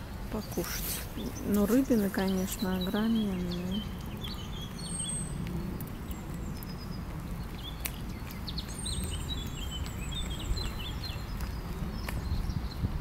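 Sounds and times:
songbirds chirping: 0.0 - 13.0
steady low rumble: 0.0 - 13.0.

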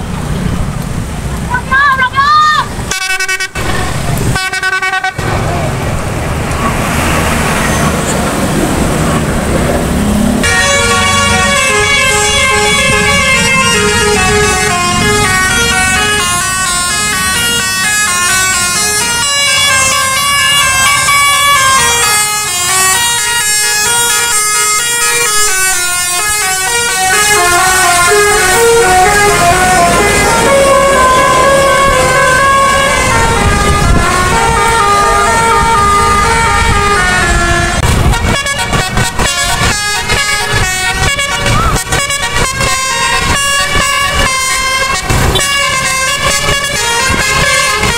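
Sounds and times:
engine and traffic rumble: 0.0 - 47.9
bus musical air horns: 1.7 - 5.4, 10.3 - 47.9.

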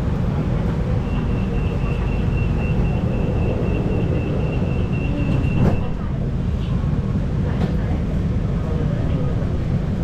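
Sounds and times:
train car hum: 0.0 - 10.0
high rapid door warning beeping: 1.0 - 5.9.

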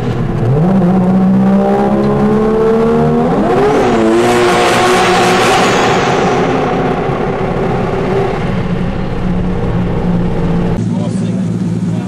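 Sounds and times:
vehicle engine at high speed: 0.0 - 12.0
rushing wind noise: 3.4 - 10.8.

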